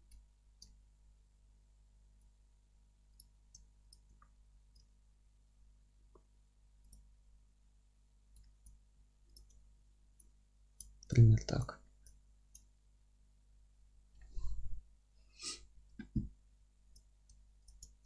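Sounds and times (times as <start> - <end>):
computer mouse and keyboard clicks: 16.9 - 18.0.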